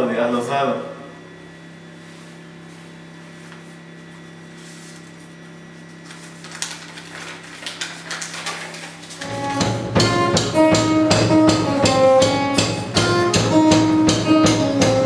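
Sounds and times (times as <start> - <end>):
steady low hum: 0.0 - 15.0
paper crinkling and rustling: 2.8 - 9.3.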